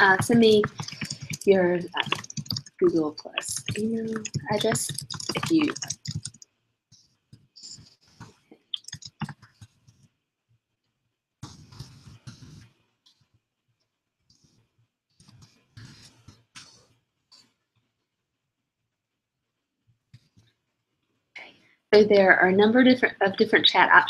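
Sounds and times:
computer keyboard typing: 0:00.0 - 0:06.4, 0:07.6 - 0:09.7.

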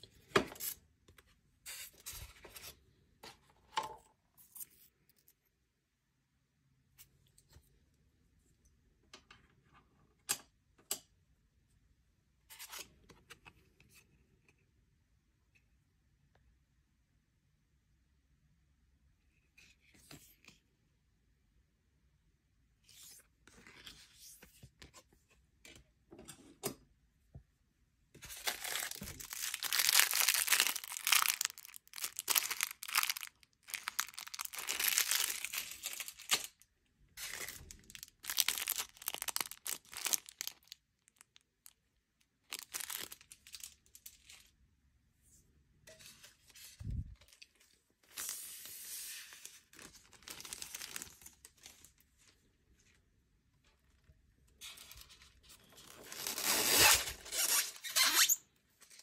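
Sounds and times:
plastic bag crinkling: 0:28.4 - 0:36.6, 0:37.2 - 0:41.8, 0:42.5 - 0:44.2, 0:49.8 - 0:51.7.

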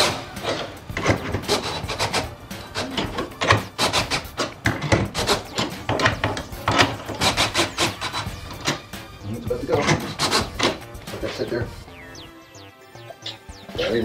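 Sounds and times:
metal clicking and creaking: 0:00.0 - 0:09.0, 0:09.6 - 0:11.6.

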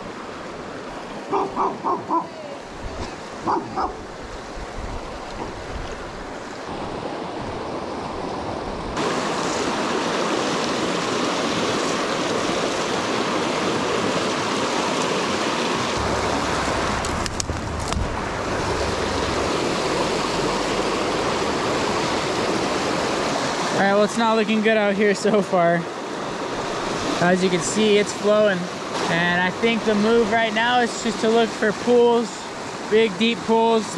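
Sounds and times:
stream rushing over rocks: 0:00.0 - 0:33.9.

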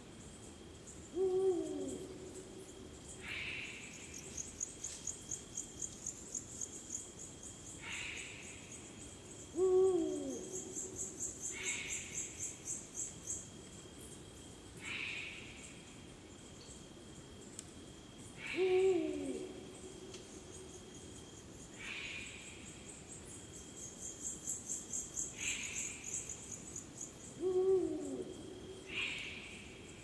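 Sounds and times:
insects chirping and trilling: 0:00.0 - 0:30.0
owl hooting deeply: 0:18.4 - 0:19.6, 0:27.4 - 0:29.4.

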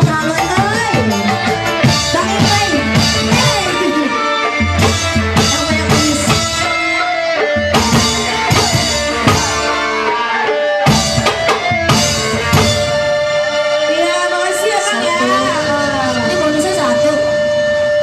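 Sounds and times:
drum kit: 0:00.0 - 0:18.0
guitar: 0:00.0 - 0:18.0.

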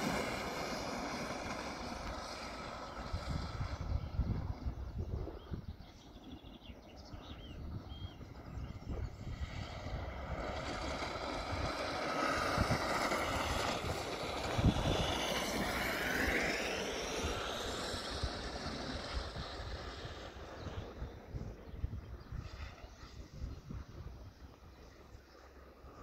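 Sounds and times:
electric kart motor whining: 0:00.0 - 0:05.4, 0:08.2 - 0:22.0.

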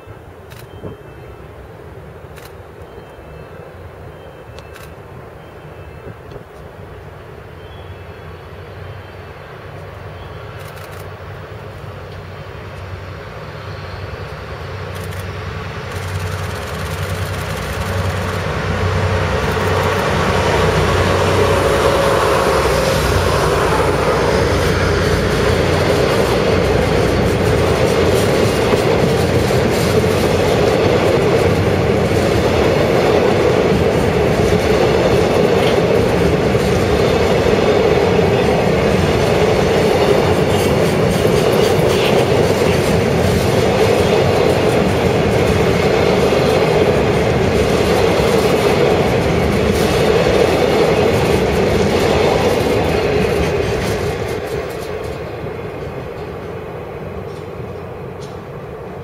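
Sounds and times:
train wheels rumbling on rails: 0:00.0 - 0:59.0
wheels clicking over rail joints: 0:14.9 - 0:58.6.

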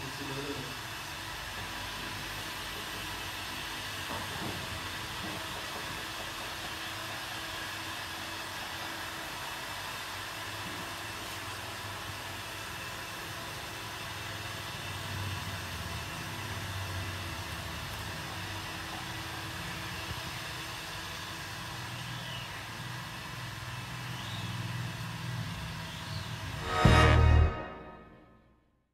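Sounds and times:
low hum: 0:26.6 - 0:28.4.

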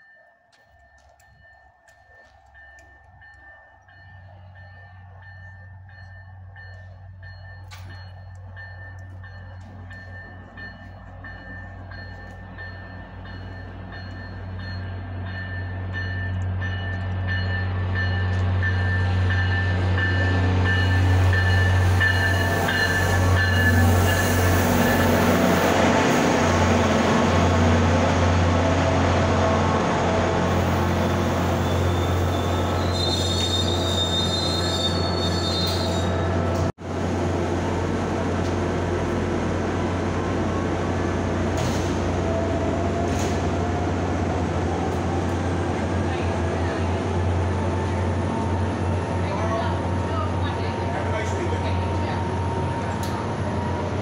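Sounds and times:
diesel locomotive engine drone: 0:00.0 - 0:54.0
high wavering brake squeal: 0:20.0 - 0:25.3, 0:30.5 - 0:36.5.

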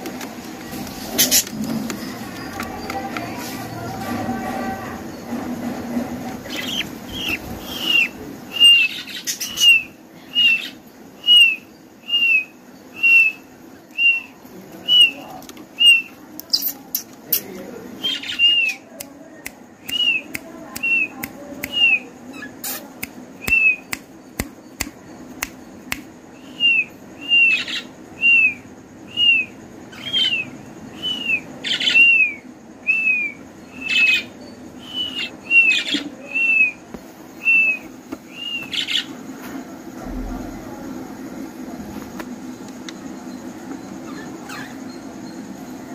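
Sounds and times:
budgerigar chicks chirping: 0:06.4 - 0:11.6, 0:14.0 - 0:18.9.

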